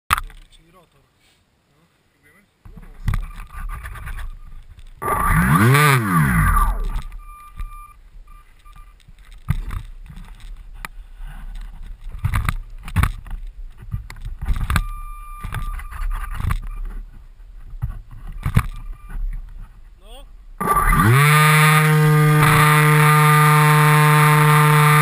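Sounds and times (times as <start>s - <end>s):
electric motor and propeller whine: 5.0s - 7.1s, 20.6s - 25.0s
knocks and bumps on snow: 9.0s - 20.0s.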